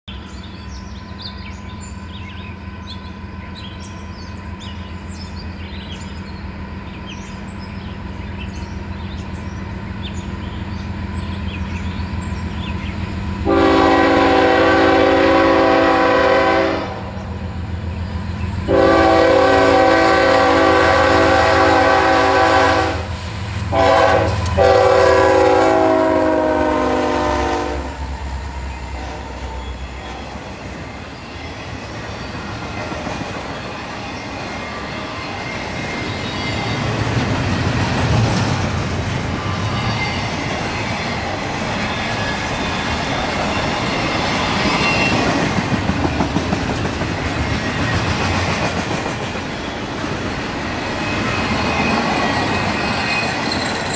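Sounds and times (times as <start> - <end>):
diesel locomotive engine rumble: 0.1 - 53.9
locomotive air horn blasts: 13.4 - 17.2, 18.7 - 28.1, 28.9 - 30.4.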